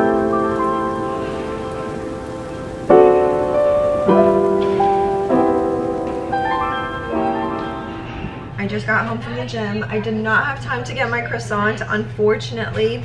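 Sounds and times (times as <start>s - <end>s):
background music chords: 0.0s - 8.6s.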